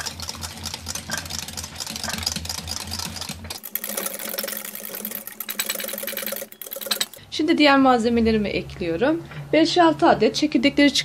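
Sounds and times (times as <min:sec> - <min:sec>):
whisk clicking in glass bowl: 0:00.0 - 0:07.2.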